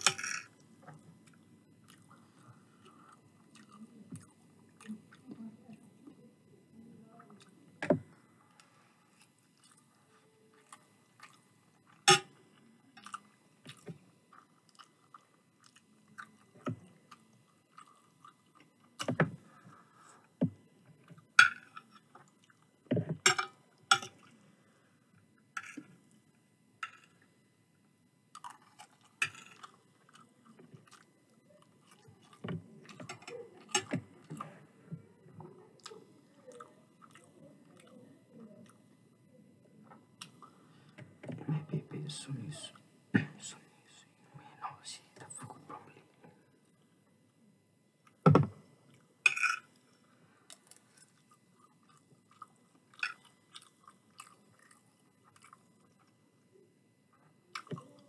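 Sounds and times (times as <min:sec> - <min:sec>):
chewing and mouth sounds: 0:00.9 - 0:05.3, 0:09.2 - 0:11.9, 0:13.0 - 0:19.1, 0:22.0 - 0:22.7, 0:28.3 - 0:32.4, 0:35.8 - 0:38.0, 0:50.5 - 0:56.2.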